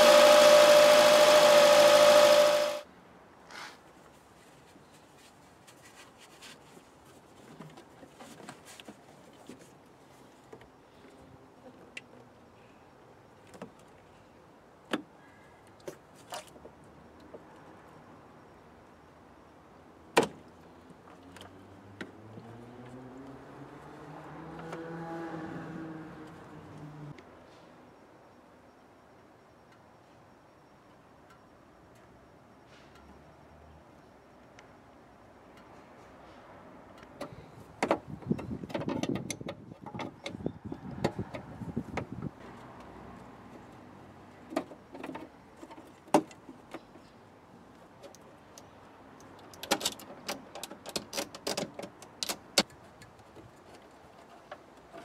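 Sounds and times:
vehicle engine hum: 0:20.6 - 0:27.2.

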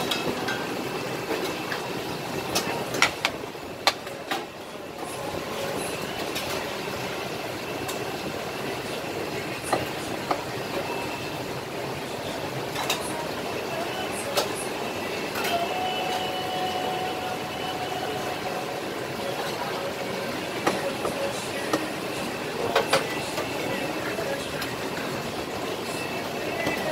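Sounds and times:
utensils and plates clinking: 0:00.0 - 0:01.8, 0:12.6 - 0:26.9
busy kitchen din: 0:00.0 - 0:26.9.

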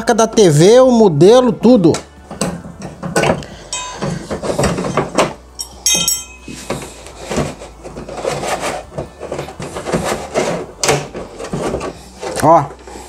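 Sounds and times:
screwdriver clinking on table: 0:03.7 - 0:04.2, 0:05.6 - 0:06.7.

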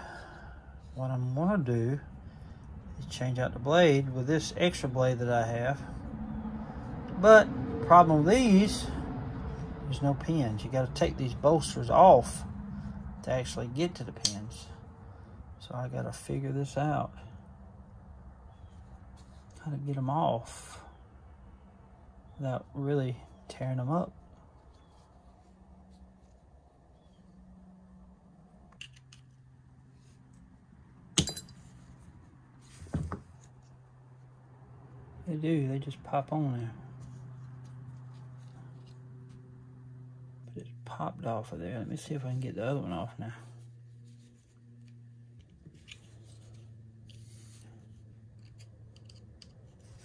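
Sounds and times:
faint steady hum: 0:00.0 - 0:50.0
small metal tool clinks: 0:31.2 - 0:31.6
metal pick scraping and clicking: 0:48.4 - 0:49.6.

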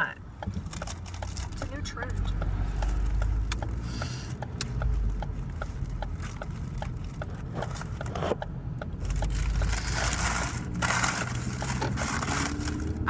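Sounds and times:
car indicator ticking: 0:00.0 - 0:09.7
car engine idling: 0:00.0 - 0:13.0.

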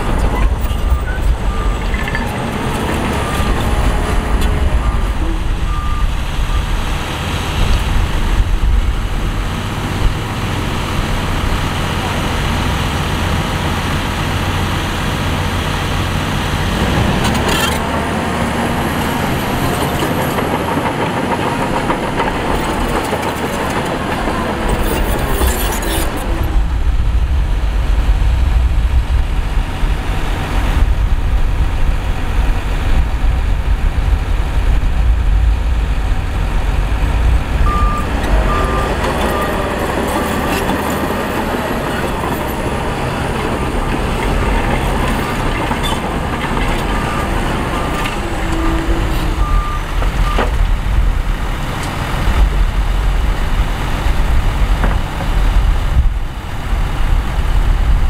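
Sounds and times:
heavy diesel machinery running: 0:00.0 - 0:58.0
reversing alarm beeping: 0:37.7 - 0:40.4.

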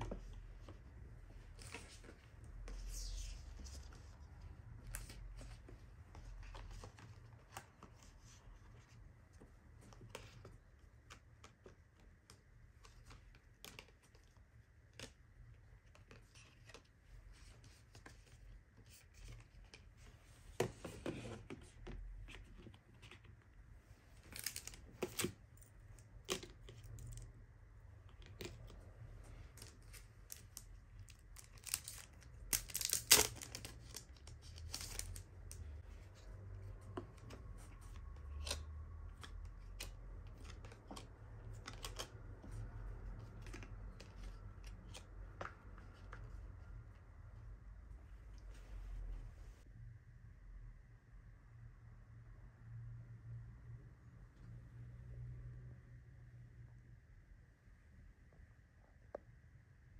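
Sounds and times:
paper and card rustling and tapping: 0:24.2 - 0:27.3, 0:28.0 - 0:46.8.

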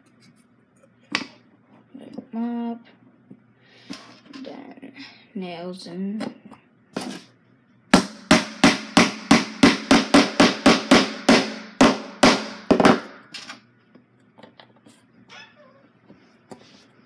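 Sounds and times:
hammer hitting nail into wood: 0:08.0 - 0:13.2.

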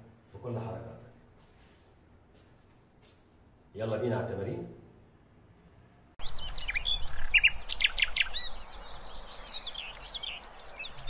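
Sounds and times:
birds chirping and singing: 0:06.2 - 0:11.0.

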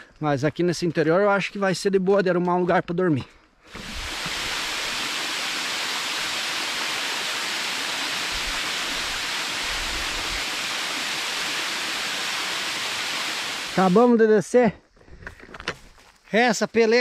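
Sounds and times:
waterfall rushing: 0:03.7 - 0:14.0.

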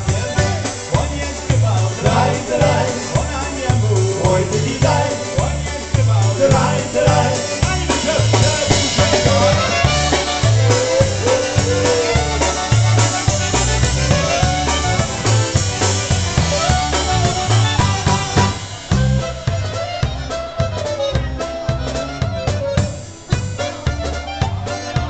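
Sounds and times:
bass: 0:00.0 - 0:25.0
drums polka beat: 0:00.0 - 0:25.0
concertina melody: 0:08.8 - 0:25.0.

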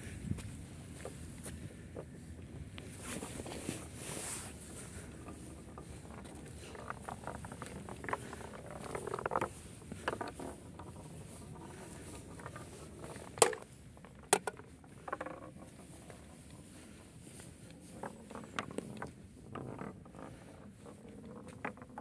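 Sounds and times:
wooden ball rolling rattling: 0:02.0 - 0:22.0.

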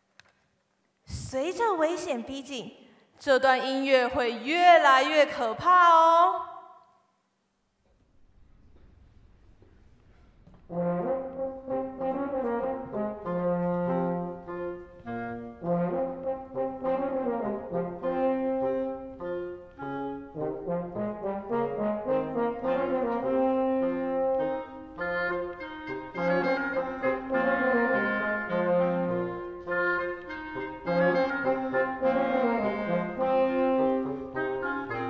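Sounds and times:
woodwind quintet playing: 0:10.7 - 0:35.0.

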